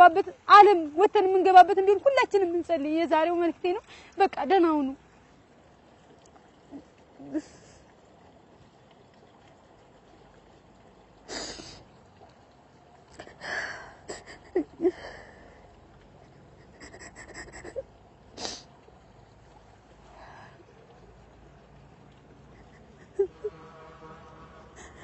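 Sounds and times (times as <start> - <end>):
woman sobbing: 13.2 - 15.2, 16.6 - 17.8, 22.5 - 23.5, 24.8 - 25.0
woman weeping and sniffing: 13.2 - 15.2, 16.4 - 17.8, 22.5 - 23.5, 24.8 - 25.0.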